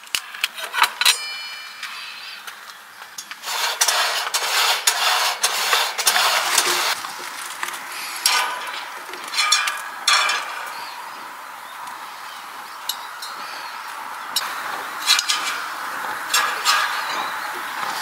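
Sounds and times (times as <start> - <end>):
rustling handling noise: 3.3 - 9.8.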